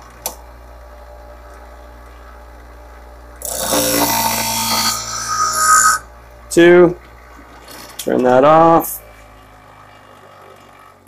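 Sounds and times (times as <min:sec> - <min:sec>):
blade grinding on wheel: 0:03.4 - 0:06.1
sharpener motor humming: 0:03.4 - 0:06.1.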